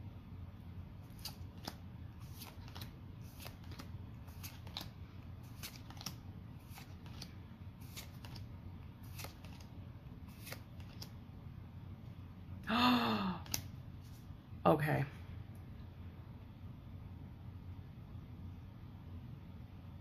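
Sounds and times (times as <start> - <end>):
low steady hum: 0.0 - 20.0
trading cards flipping: 1.1 - 11.2, 13.4 - 14.2.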